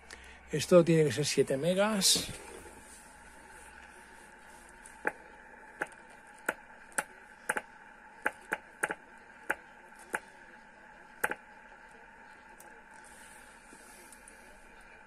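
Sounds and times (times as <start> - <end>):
faint steady tones: 0.0 - 15.0
radio receiver hiss: 0.0 - 15.0
rotary switch clicking: 5.8 - 10.2, 11.2 - 11.4.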